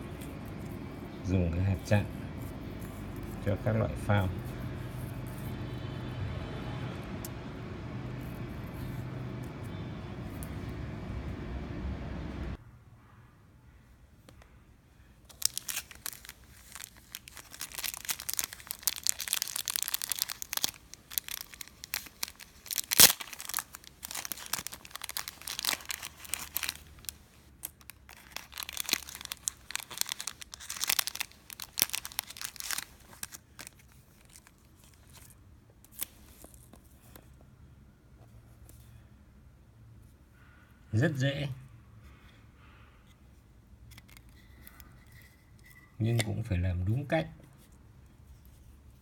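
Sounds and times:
sharp plastic crack: 15.3s - 34.5s
plastic packaging crinkling: 15.3s - 37.1s.

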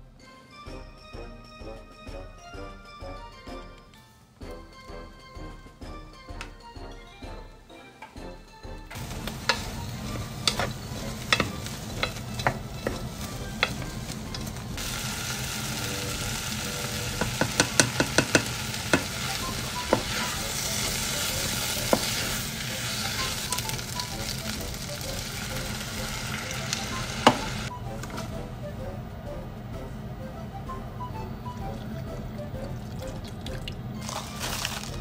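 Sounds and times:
wooden spatula scraping pan: 9.0s - 14.6s
onions and bacon sizzling in pan: 9.0s - 28.1s, 34.0s - 35.0s.

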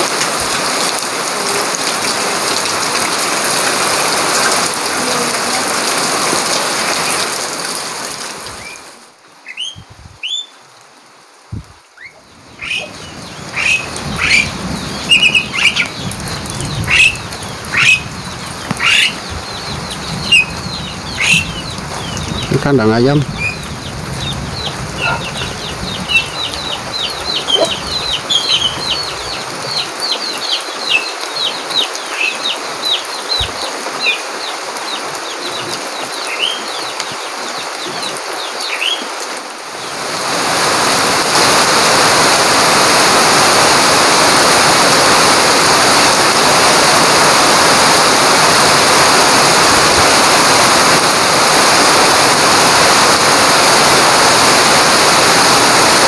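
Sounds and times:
rain hiss: 0.0s - 56.0s
chicks peeping: 12.0s - 35.8s.

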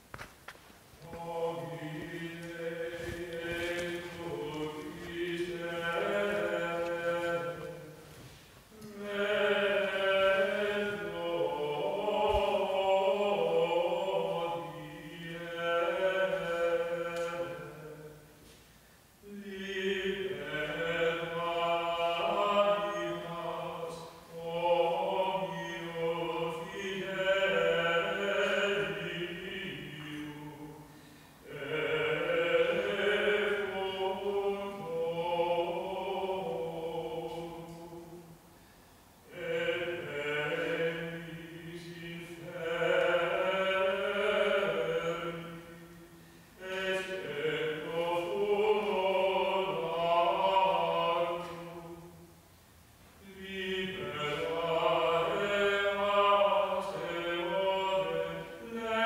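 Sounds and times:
slow liturgical chant: 0.0s - 59.0s.

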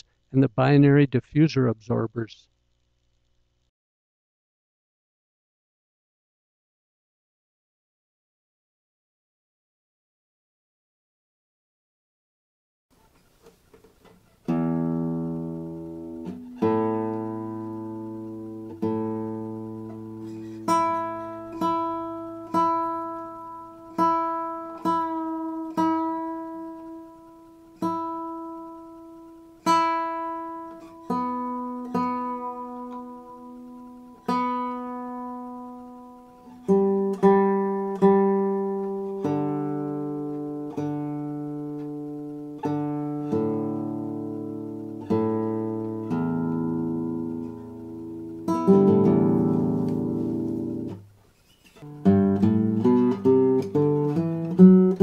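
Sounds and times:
classical guitar fingerstyle: 13.0s - 55.0s.

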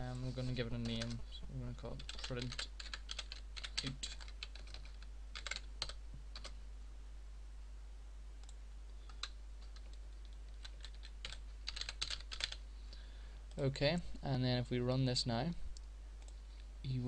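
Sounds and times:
computer keyboard typing: 2.0s - 6.5s, 8.4s - 12.6s.

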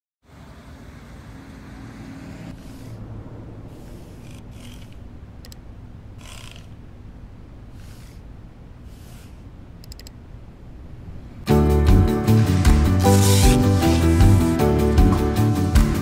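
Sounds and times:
steady low hum: 0.3s - 14.7s
computer mouse clicks: 4.2s - 5.6s, 9.0s - 10.2s.

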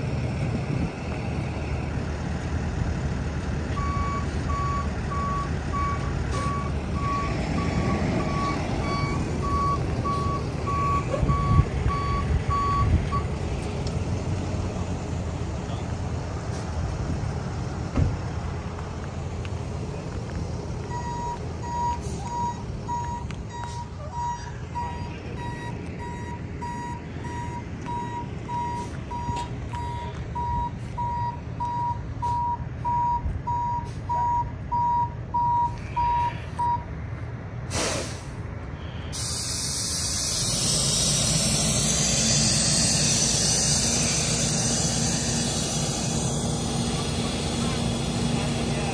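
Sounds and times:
loud steady engine noise: 0.0s - 32.2s, 35.6s - 48.9s
engines rumbling: 0.0s - 48.9s
vehicle backup alarm beeping: 3.7s - 13.4s, 20.8s - 36.9s.

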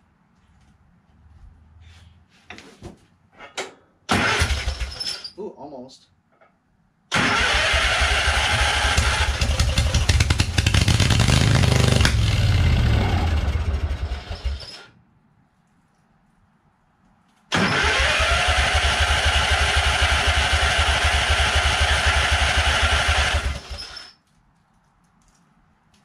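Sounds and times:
electric starter cranking engine: 4.1s - 5.0s, 7.1s - 14.9s, 17.5s - 24.2s
lawn tractor engine running: 7.2s - 14.6s, 17.6s - 23.8s.

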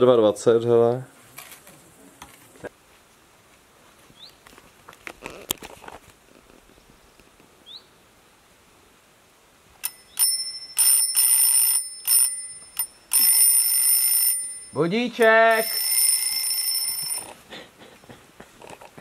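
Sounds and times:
bell ringing in loud bursts: 9.8s - 17.3s.

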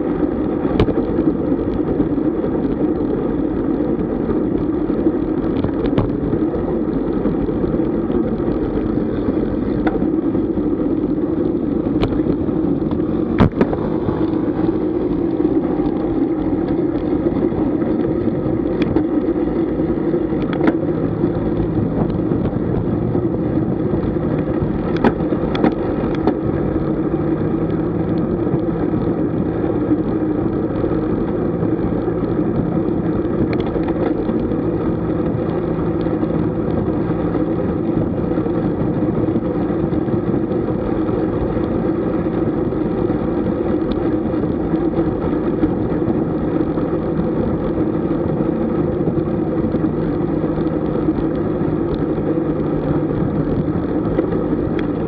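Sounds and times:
wind and road noise: 0.0s - 55.0s.

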